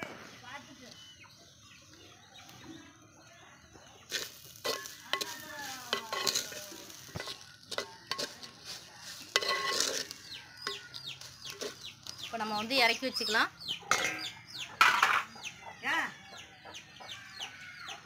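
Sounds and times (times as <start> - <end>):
wooden spatula scraping clay pot: 4.1 - 13.2.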